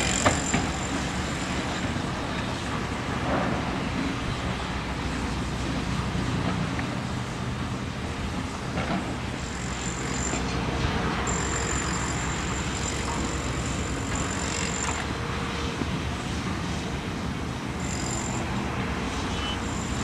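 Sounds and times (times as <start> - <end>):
heavy diesel machinery rumbling: 0.0 - 20.0
thin high whine: 17.8 - 20.0.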